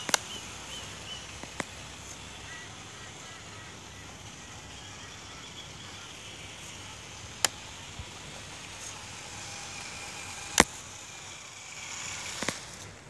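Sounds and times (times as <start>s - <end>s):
sharp clicks: 0.0s - 2.2s, 6.6s - 9.0s, 9.7s - 12.9s
faint electric motor whine: 0.0s - 13.0s
steady hiss: 0.0s - 13.0s.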